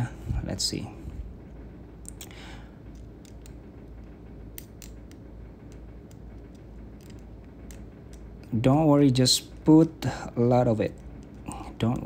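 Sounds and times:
room hum: 0.0s - 12.0s
faint small clicks and ticks: 2.0s - 8.6s, 10.8s - 12.0s.

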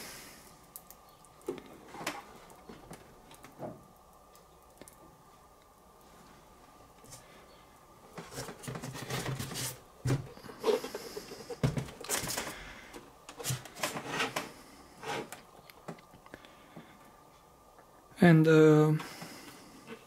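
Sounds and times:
packaging rustling and scraping: 8.2s - 12.6s, 13.3s - 15.4s.

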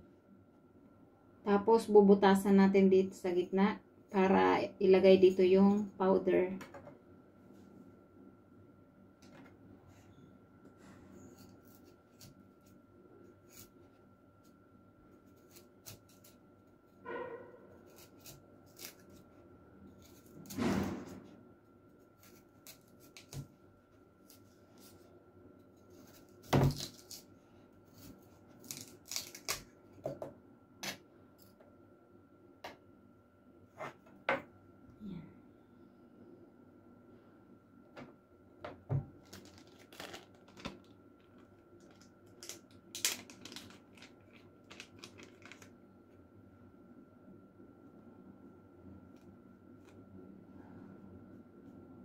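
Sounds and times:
faint steady hum: 0.0s - 52.0s.

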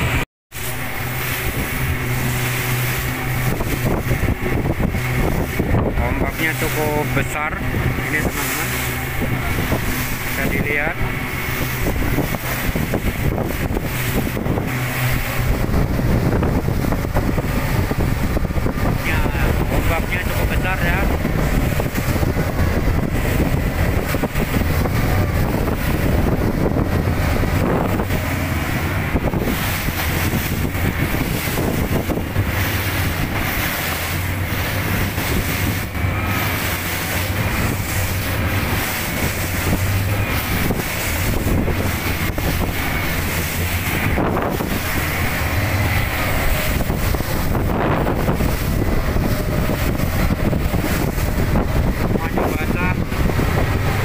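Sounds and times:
hull rushing through waves: 0.0s - 54.0s
outboard motors humming: 0.0s - 54.0s
wind buffeting microphone: 0.0s - 54.0s.

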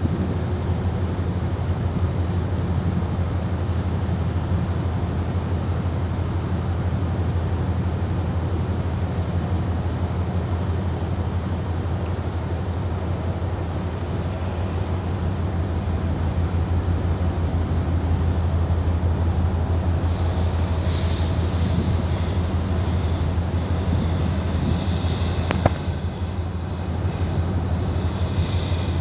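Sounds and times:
boat diesel engine rumbling: 10.9s - 29.0s
hiss: 20.0s - 29.0s.

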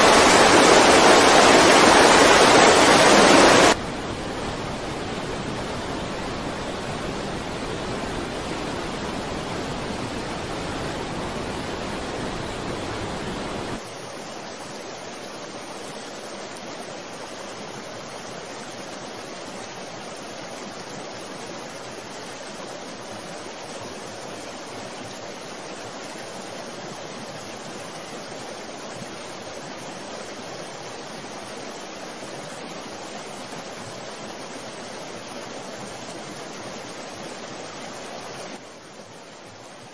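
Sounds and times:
steady rushing noise: 0.0s - 17.2s.

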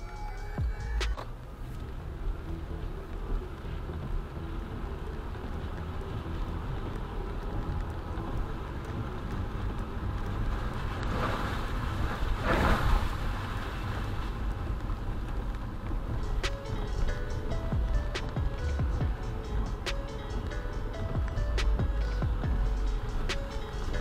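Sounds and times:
car cabin road rumble: 0.0s - 24.0s
car tyres hissing past on wet road: 8.4s - 15.5s.

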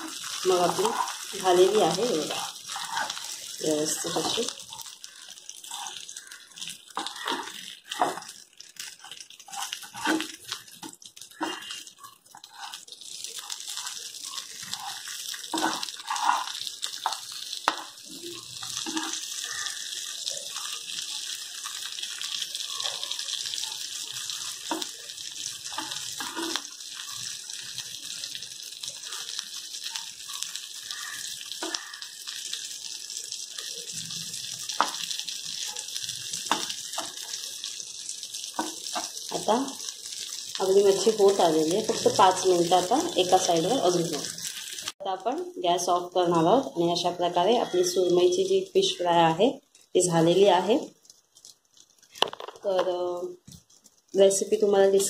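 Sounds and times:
metal spatula scraping a pan: 0.0s - 4.8s, 7.0s - 17.9s, 18.6s - 19.4s, 25.7s - 26.7s
fish sizzling in oil: 0.0s - 55.0s.

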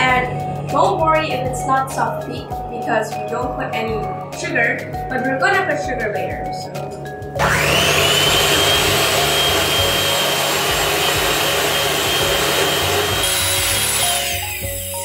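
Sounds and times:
electric hand mixer whining: 7.4s - 15.0s.

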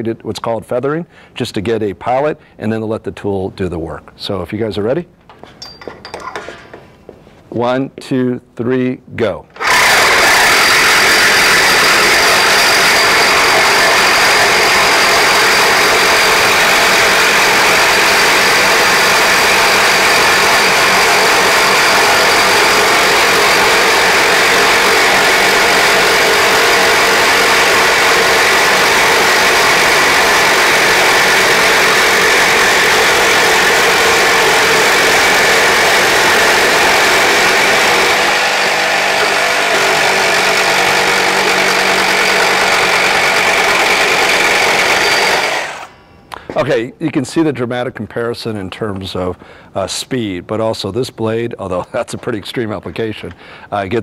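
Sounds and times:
reciprocating saws cutting steel pipe: 9.6s - 46.0s.

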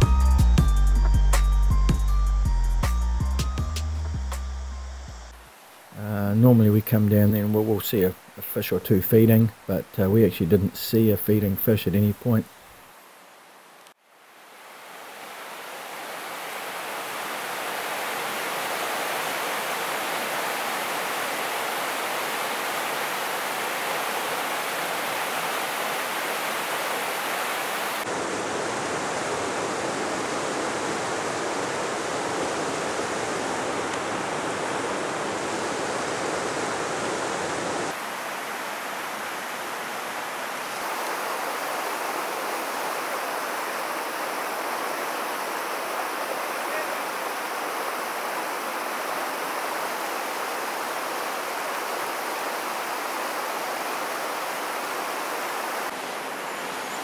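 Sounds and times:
river rushing over rocks: 14.1s - 57.0s.

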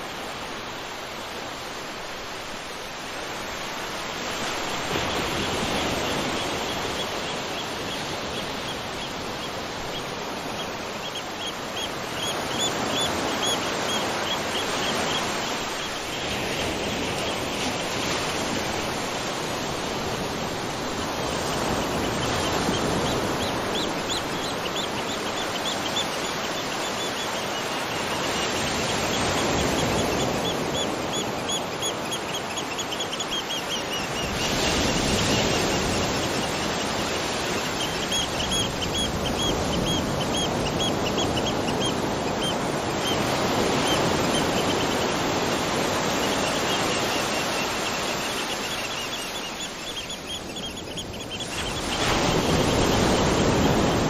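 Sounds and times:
falling water and rain: 0.0s - 7.6s.

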